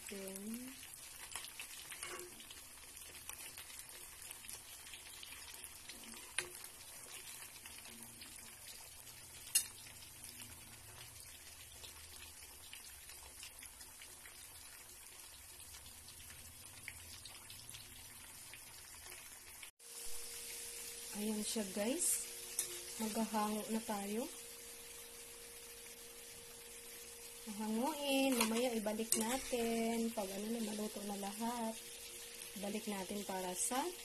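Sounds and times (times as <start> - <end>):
food deep-frying in oil: 0.0 - 34.0.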